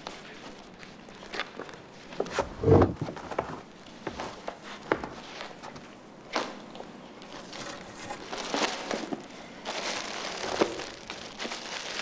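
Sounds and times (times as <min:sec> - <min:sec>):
cellophane wrapping crinkling: 0:07.3 - 0:12.0.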